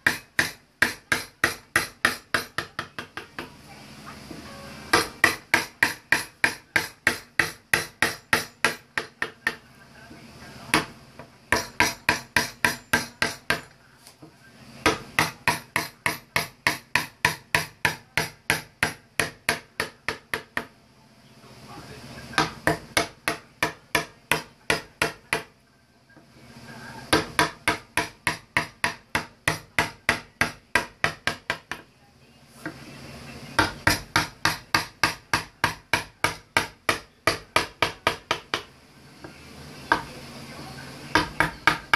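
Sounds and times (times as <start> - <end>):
wooden mallet tapping a gouge: 0.0 - 3.5, 4.9 - 9.6, 11.5 - 13.7, 14.8 - 20.7, 27.1 - 31.8, 33.6 - 38.7.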